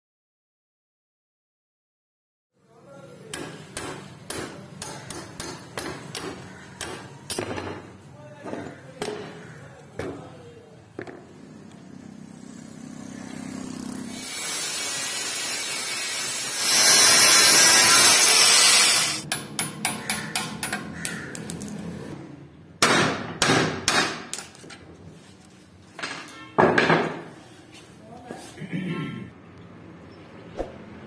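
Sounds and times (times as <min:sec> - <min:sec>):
loud grinding on steel: 0:14.0 - 0:19.3.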